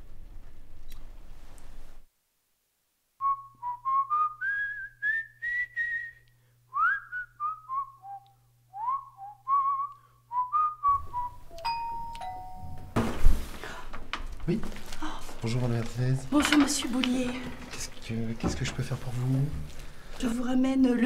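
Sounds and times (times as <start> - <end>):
person whistling a tune: 3.2 - 11.8.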